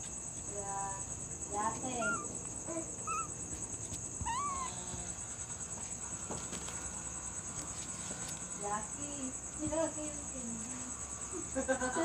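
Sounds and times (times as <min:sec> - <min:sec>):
high-pitched insect chorus: 0:00.0 - 0:12.0
kitten mewing: 0:01.9 - 0:02.4, 0:03.0 - 0:03.4, 0:04.2 - 0:05.1.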